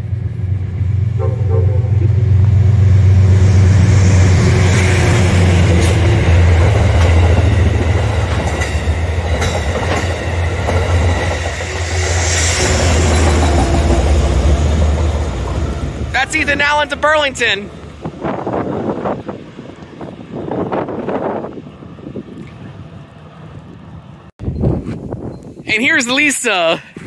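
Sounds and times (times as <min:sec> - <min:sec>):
train wheels rumbling on rails: 0:00.0 - 0:24.3
diesel locomotive drone: 0:00.0 - 0:24.4
sharp rail clicks: 0:04.7 - 0:18.4.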